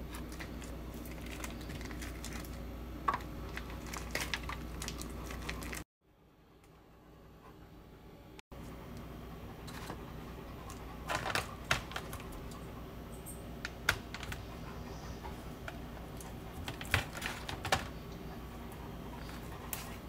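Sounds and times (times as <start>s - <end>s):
plastic wrapping crinkling: 0.0s - 5.8s
steady low hum: 0.0s - 20.0s.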